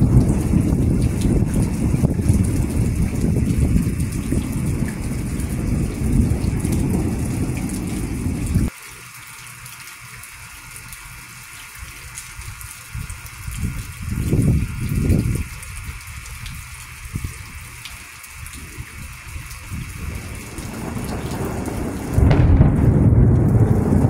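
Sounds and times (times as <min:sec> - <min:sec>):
low rumbling gusts: 0:00.0 - 0:08.7, 0:12.9 - 0:17.6, 0:18.4 - 0:24.0
low thunder rumble: 0:00.0 - 0:08.7, 0:18.5 - 0:24.0
rain hiss: 0:00.0 - 0:24.0.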